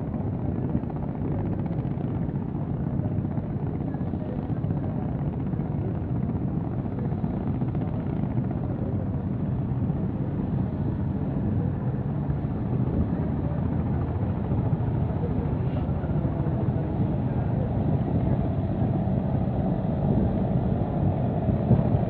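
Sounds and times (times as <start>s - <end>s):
boat diesel engine drone: 10.0s - 22.0s.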